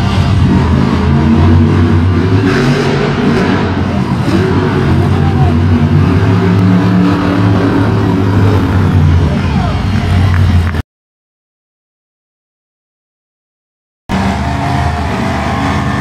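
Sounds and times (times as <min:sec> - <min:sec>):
truck engine running hard: 0:00.0 - 0:10.8, 0:14.1 - 0:16.0.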